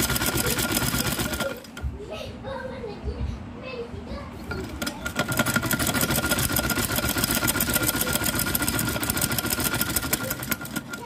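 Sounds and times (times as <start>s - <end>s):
sewing machine running: 0.0s - 1.8s, 4.6s - 11.0s.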